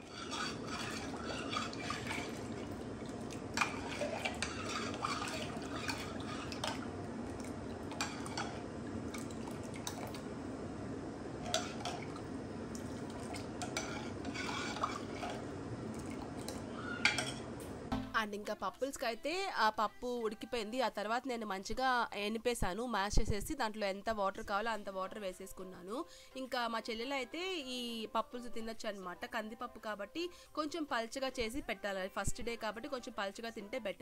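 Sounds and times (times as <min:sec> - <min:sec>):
spoon stirring wet lentils: 0:00.0 - 0:10.3, 0:11.4 - 0:17.6
spoon clinking against pot: 0:16.4 - 0:17.5.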